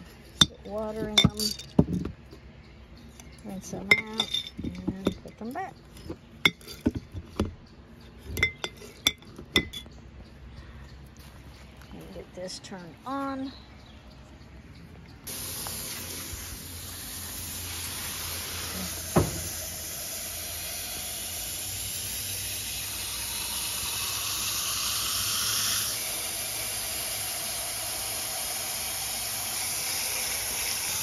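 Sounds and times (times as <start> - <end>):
tap water running: 15.3 - 31.0.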